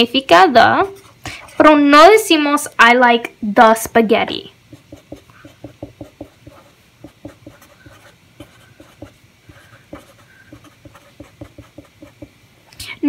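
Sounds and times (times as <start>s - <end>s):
marker writing on paper: 4.7s - 12.3s.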